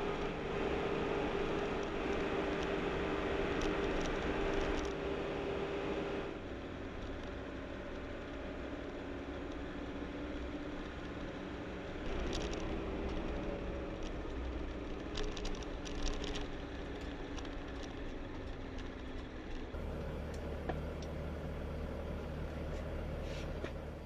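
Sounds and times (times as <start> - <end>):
light clicks and rattles: 12.0 - 13.4, 14.0 - 21.2
diesel engine running: 18.6 - 24.0.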